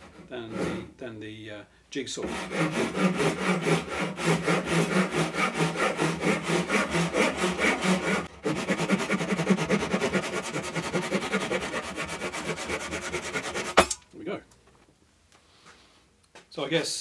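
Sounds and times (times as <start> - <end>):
hand saw cutting wood: 0.0 - 0.9, 2.2 - 14.0.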